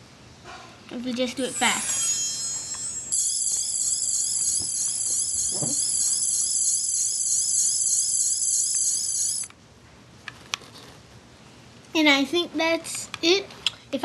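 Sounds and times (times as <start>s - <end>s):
falling high electronic tones: 1.4s - 9.5s
high-pitched warbling tone: 1.4s - 9.5s.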